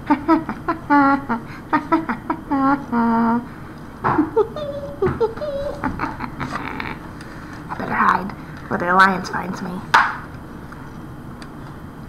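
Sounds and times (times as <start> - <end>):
young person humming: 0.5 - 3.5, 4.1 - 7.1.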